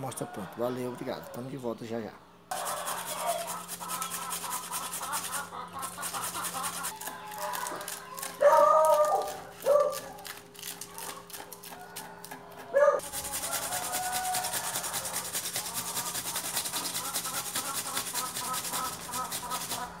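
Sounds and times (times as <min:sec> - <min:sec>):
carrot scraped on metal grater: 0:02.5 - 0:12.4, 0:13.0 - 0:20.0.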